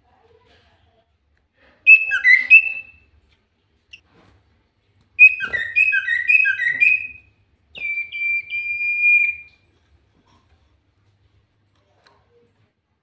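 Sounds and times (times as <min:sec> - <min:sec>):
bird whistling song: 0:01.9 - 0:03.0, 0:05.2 - 0:09.6.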